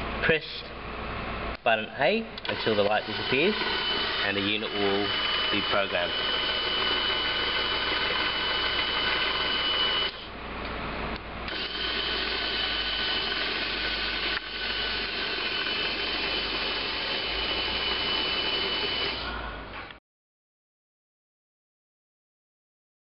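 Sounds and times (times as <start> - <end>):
roller door motor whine: 2.4 - 10.3, 11.4 - 19.9.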